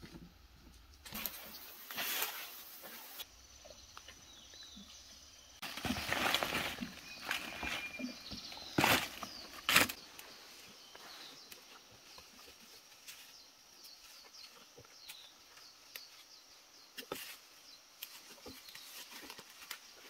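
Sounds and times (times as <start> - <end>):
footsteps rustling through dry leaves: 5.6 - 10.0.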